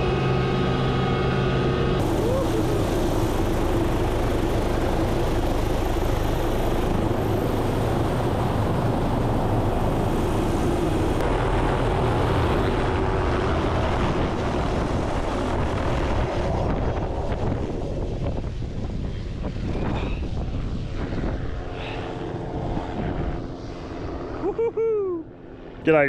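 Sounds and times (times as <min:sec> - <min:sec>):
helicopter rotor and engine: 0:00.0 - 0:26.0.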